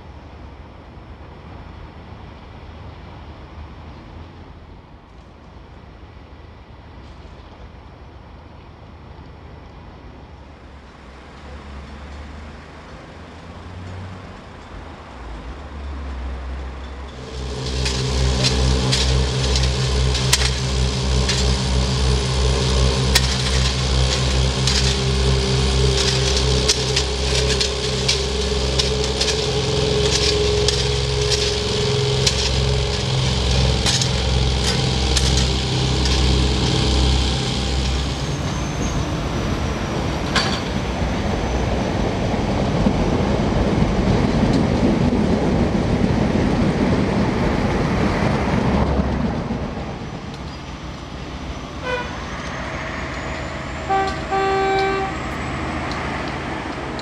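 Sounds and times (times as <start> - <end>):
train engine drone: 0.0 - 57.0
thin high whine: 16.7 - 41.8, 50.0 - 57.0
wheels clicking over rail joints: 17.1 - 38.3.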